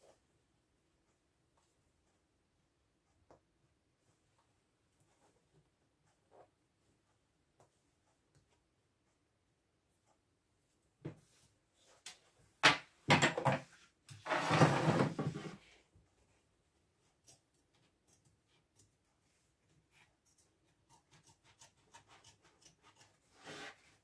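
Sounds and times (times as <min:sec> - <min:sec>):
scissors cutting fabric: 0:17.0 - 0:23.8.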